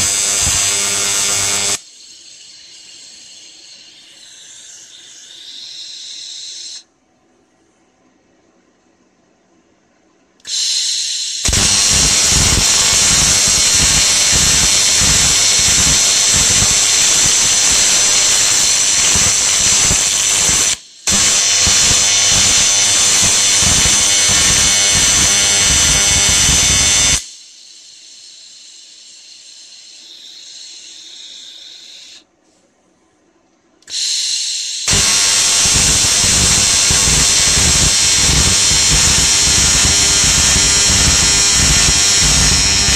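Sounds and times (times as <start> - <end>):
welding arc buzzing: 0.0 - 1.9, 10.5 - 27.4, 33.9 - 42.9.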